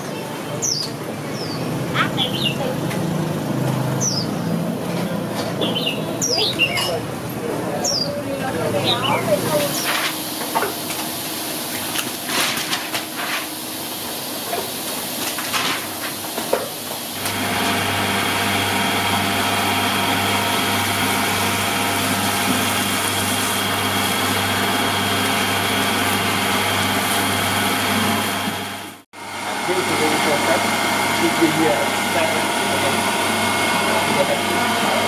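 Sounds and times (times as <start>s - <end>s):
machinery motor hum: 17.2s - 35.0s.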